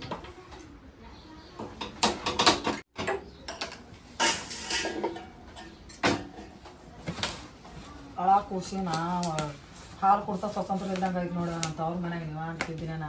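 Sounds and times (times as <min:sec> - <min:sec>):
pots and lid clinking: 0:02.0 - 0:06.5.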